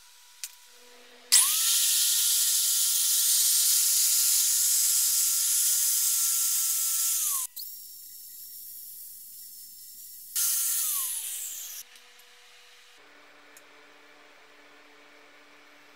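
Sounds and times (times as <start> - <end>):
angle grinder grinding sheet metal: 0.8 - 7.5, 10.4 - 12.0.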